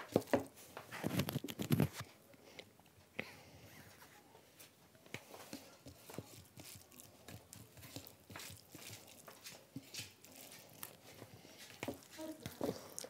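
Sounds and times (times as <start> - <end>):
fingers mixing food wet squelches: 5.0 - 13.0.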